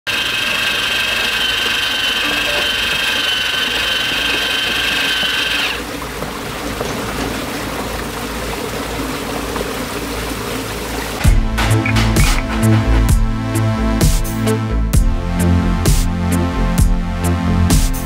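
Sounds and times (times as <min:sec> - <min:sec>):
small electric motor whining: 0:00.1 - 0:05.8
water pouring through spillway: 0:00.2 - 0:11.3.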